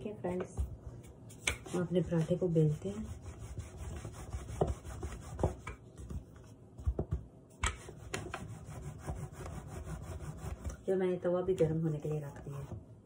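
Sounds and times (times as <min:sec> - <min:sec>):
rolling pin rubbing on dough: 0:01.0 - 0:07.0, 0:07.6 - 0:10.8, 0:11.9 - 0:12.8.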